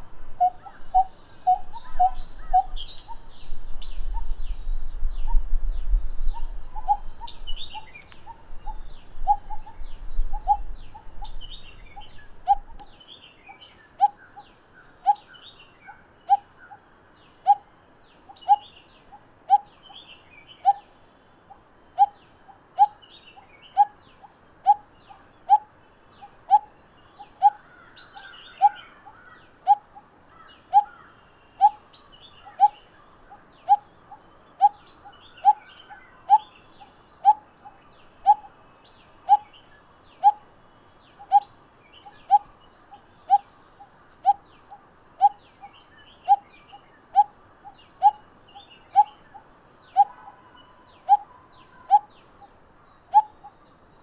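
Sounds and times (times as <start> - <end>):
faint small bird chirps: 17.5 - 54.0.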